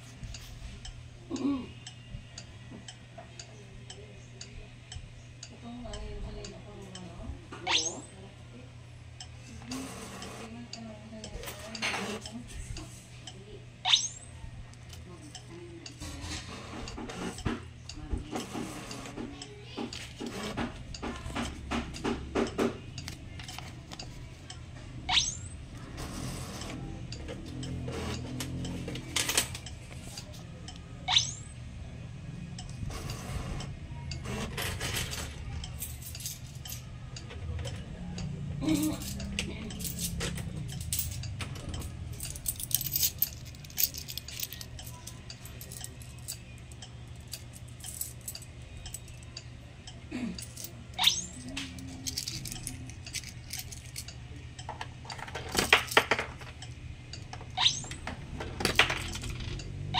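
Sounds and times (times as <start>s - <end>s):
machine low hum: 0.0s - 59.9s
coins clinking: 34.3s - 36.8s, 38.8s - 46.4s, 47.2s - 49.2s, 50.4s - 54.2s.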